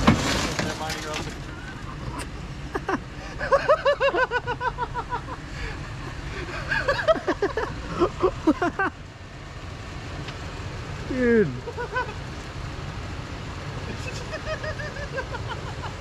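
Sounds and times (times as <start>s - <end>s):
pickup truck engine running: 0.0s - 16.0s
person laughing: 1.5s - 9.0s, 11.2s - 12.2s, 13.9s - 16.0s.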